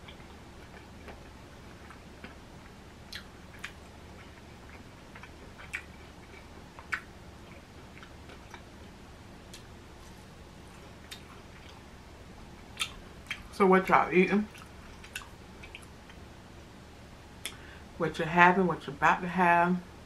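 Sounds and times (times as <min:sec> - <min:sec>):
chewing crunchy food: 0:00.0 - 0:08.9, 0:09.5 - 0:11.9, 0:12.7 - 0:13.5, 0:14.5 - 0:16.2.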